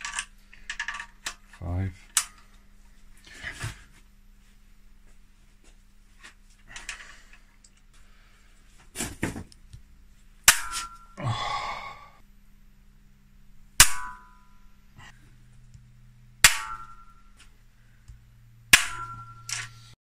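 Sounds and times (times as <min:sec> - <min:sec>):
sharp metallic cracks with ring: 0:10.4 - 0:11.2, 0:13.8 - 0:14.7, 0:16.4 - 0:17.4, 0:18.6 - 0:19.9.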